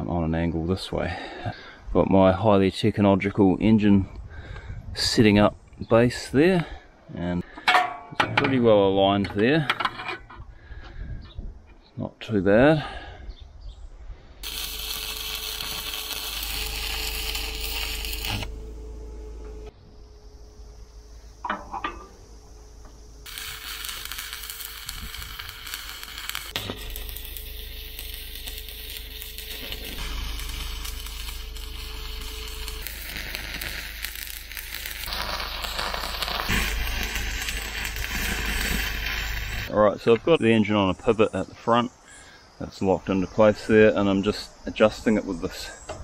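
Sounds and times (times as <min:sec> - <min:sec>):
arc welding crackle: 0:14.4 - 0:19.7, 0:23.2 - 0:39.7
low hum: 0:14.4 - 0:39.7.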